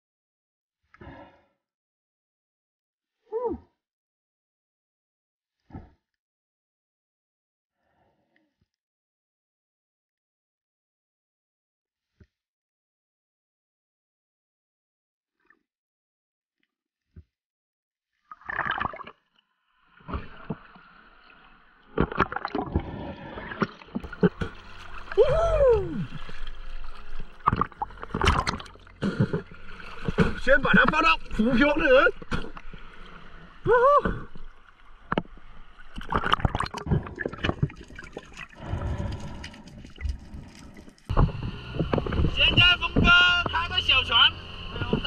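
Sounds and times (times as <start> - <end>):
seawater sloshing and gurgling: 18.3 - 19.2, 20.0 - 44.2
muffled rush of water: 20.0 - 45.0
underwater knocks and clicks: 27.4 - 31.0.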